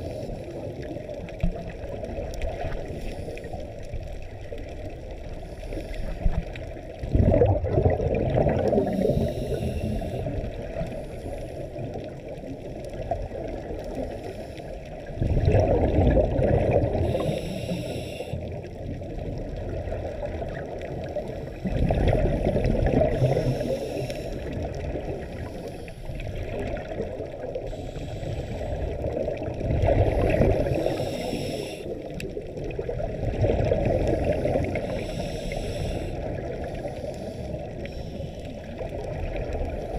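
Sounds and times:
exhaled bubbles underwater: 0.0 - 39.9
regulator hiss: 8.9 - 10.3, 17.1 - 18.4, 27.7 - 28.8, 30.6 - 31.9, 34.2 - 36.1.

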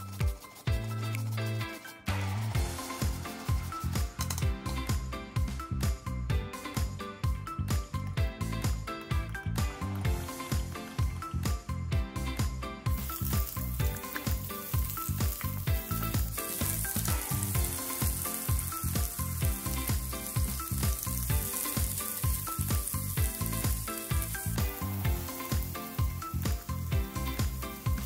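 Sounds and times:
background music with beat: 0.0 - 28.0
onion sizzling in oil: 12.9 - 28.0.

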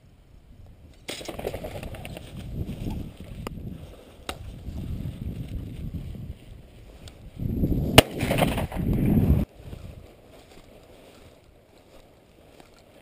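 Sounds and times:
wind buffeting microphone: 0.3 - 10.5.

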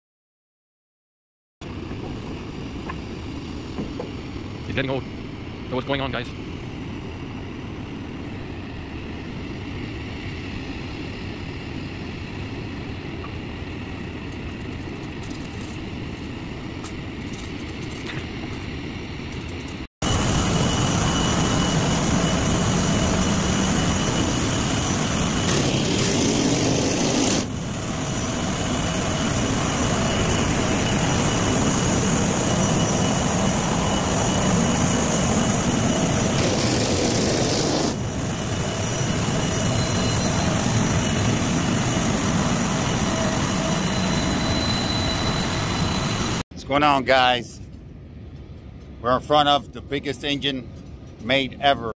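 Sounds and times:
high steady whine: 1.6 - 51.9
jet aircraft engine rumble: 1.6 - 51.9.

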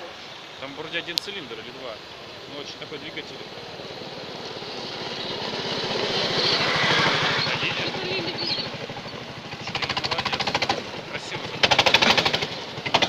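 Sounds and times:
go-kart engine running: 2.0 - 13.0.

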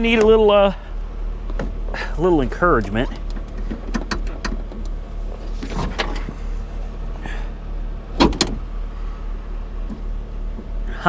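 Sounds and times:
low steady hum: 0.0 - 11.0
convertible top latch clunk: 2.8 - 5.0, 5.6 - 6.4, 8.2 - 8.7.

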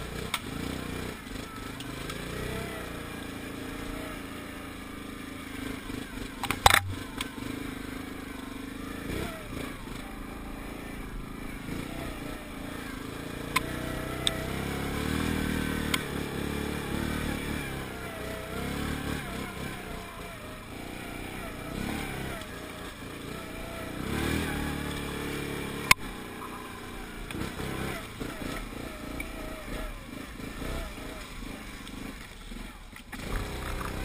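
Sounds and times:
atv engine running: 0.0 - 34.0
sharp clicks: 6.4 - 7.3.

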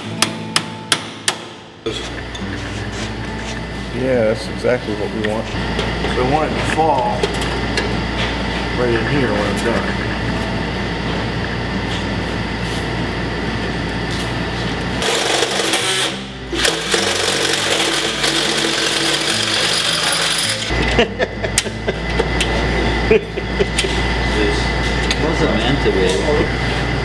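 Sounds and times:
cordless drill boring into metal: 15.0 - 20.7.

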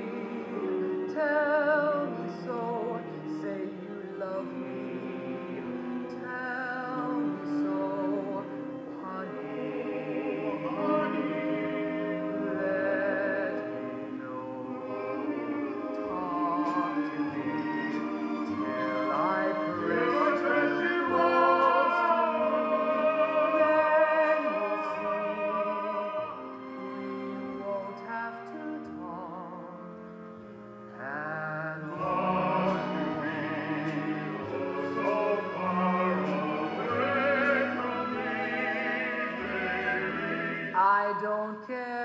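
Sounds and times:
voices singing with vibrato: 0.0 - 30.0, 31.0 - 41.7
musical accompaniment: 0.0 - 41.5.

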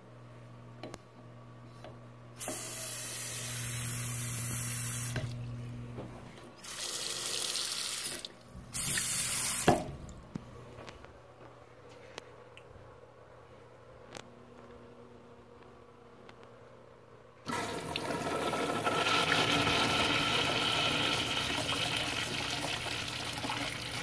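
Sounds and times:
steady low hum: 0.0 - 6.6, 8.3 - 17.5
tap water running into sink: 6.6 - 10.1.

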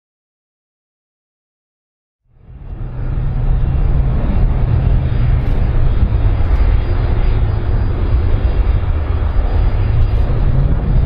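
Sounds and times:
jet engines rumbling: 2.3 - 11.0.

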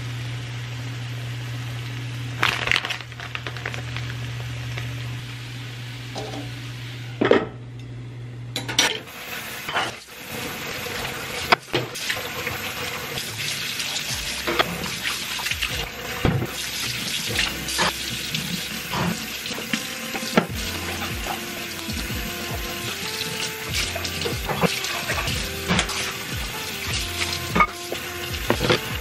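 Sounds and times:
dishes clinking against sink: 6.1 - 6.5, 8.6 - 9.1
faucet running into steel sink: 9.0 - 29.0.

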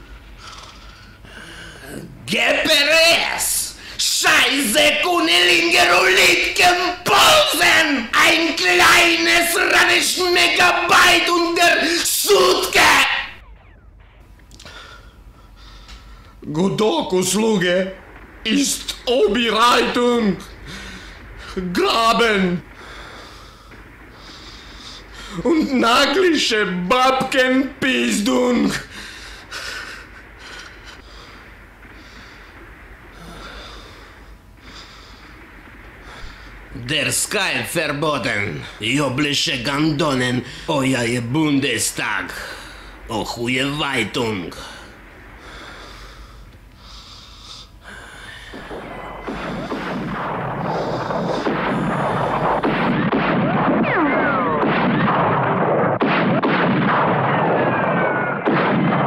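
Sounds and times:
artillery explosions: 0.0 - 59.0
steady low hum: 0.0 - 59.0
heavy breathing: 0.2 - 2.2, 20.6 - 21.5, 22.7 - 25.4, 28.9 - 36.7, 44.6 - 52.5
falling shell whistles: 13.2 - 15.3, 57.3 - 58.5.

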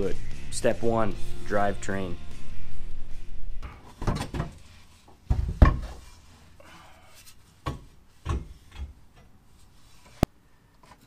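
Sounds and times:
metal knocks and scrapes: 3.6 - 6.2.

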